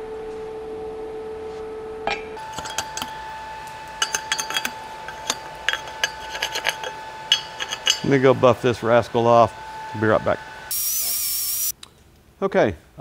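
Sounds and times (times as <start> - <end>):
steady hum: 0.0 - 11.8
slag hammer clinking on metal: 2.4 - 8.3.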